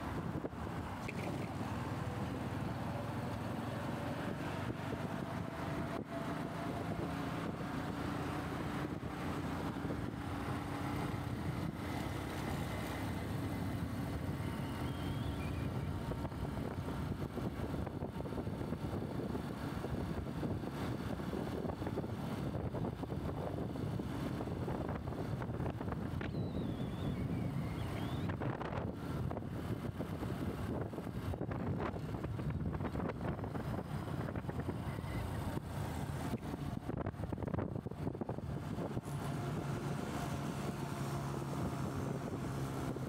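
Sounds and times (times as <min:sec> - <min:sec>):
motorbike road noise rush: 0:00.0 - 0:43.0.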